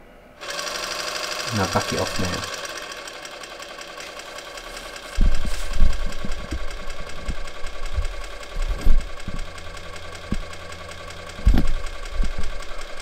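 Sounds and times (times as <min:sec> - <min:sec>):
electric fuel pump ticking whine: 0:00.0 - 0:13.0
low thumps and knocks: 0:05.1 - 0:09.6, 0:10.2 - 0:10.6, 0:11.3 - 0:12.7.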